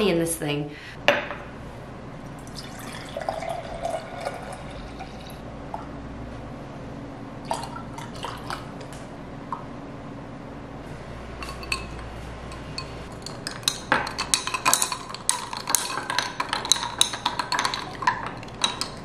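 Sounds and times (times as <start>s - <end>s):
spoon clinking in glass: 11.4s - 19.0s.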